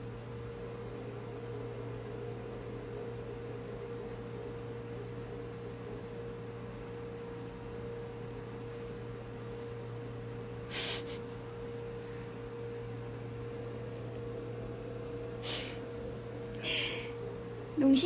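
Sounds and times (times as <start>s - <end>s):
steady low hum: 0.0s - 18.0s
breathy nasal snorts: 10.7s - 11.4s, 15.4s - 15.8s.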